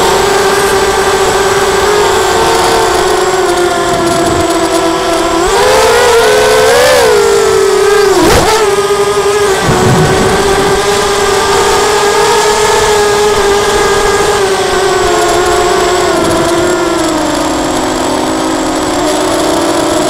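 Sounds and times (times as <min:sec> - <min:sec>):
quadcopter motors whining: 0:00.0 - 0:20.0
rush of air: 0:09.6 - 0:11.8.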